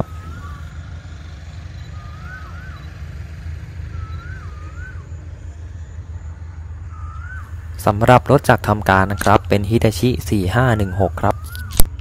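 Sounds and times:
distant locomotive rumble: 0:00.0 - 0:11.5
bird chirping: 0:00.0 - 0:11.8.

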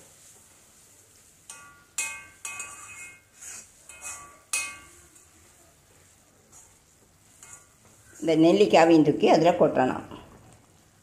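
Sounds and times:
spoon knocking metal pan: 0:01.5 - 0:05.4.

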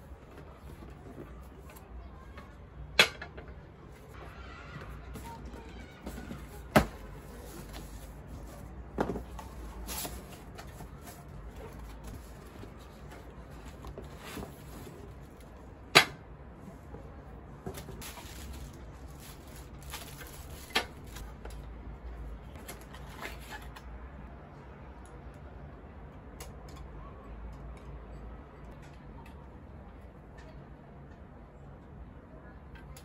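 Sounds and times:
cardboard and packaging rustling: 0:00.0 - 0:02.0, 0:03.9 - 0:15.7, 0:16.8 - 0:21.6, 0:22.5 - 0:23.8.

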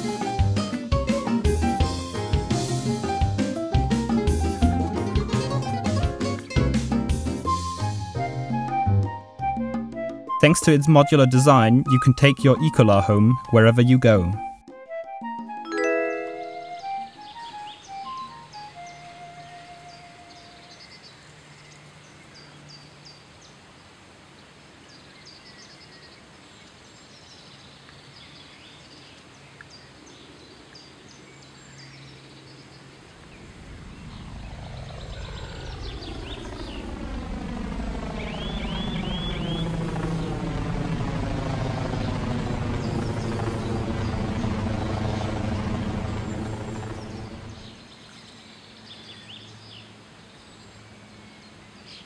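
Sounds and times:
birds chirping: 0:10.4 - 0:14.6, 0:15.8 - 0:23.6, 0:24.9 - 0:40.6, 0:41.8 - 0:52.0
engine drone approaching: 0:32.2 - 0:48.0.

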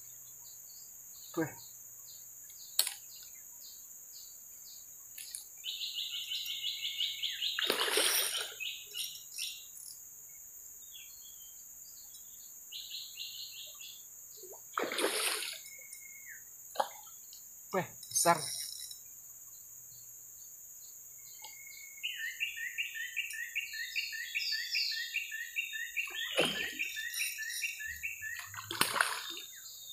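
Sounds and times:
fish splashing at water surface: 0:07.6 - 0:08.6, 0:14.8 - 0:15.7, 0:28.5 - 0:29.4
high clicking chirps: 0:17.3 - 0:19.1, 0:26.0 - 0:29.4.

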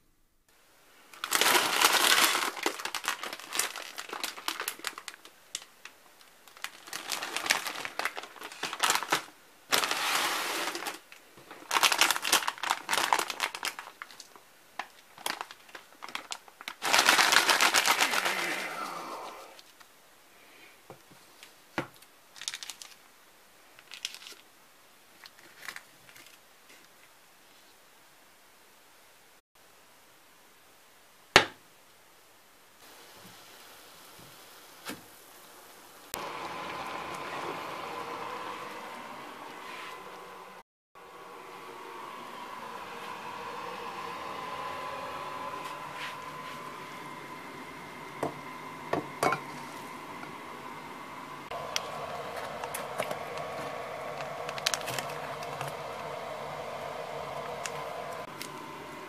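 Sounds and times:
plastic wrappers crinkling: 0:01.1 - 0:19.9, 0:21.4 - 0:23.1, 0:23.7 - 0:24.5, 0:25.2 - 0:26.9, 0:51.5 - 0:58.6.

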